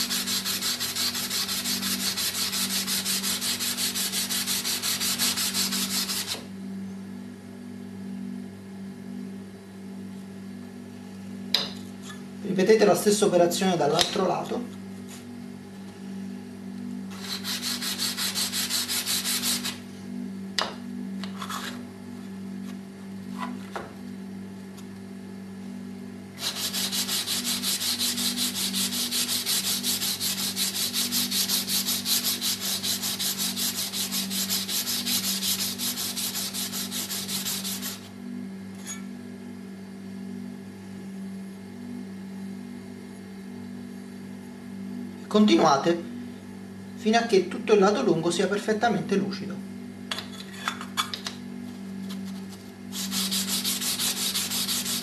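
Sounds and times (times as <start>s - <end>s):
steady low hum: 0.0s - 55.0s
metal scraper rubbing on sharpening stone: 17.1s - 19.8s, 26.4s - 38.0s, 52.9s - 55.0s.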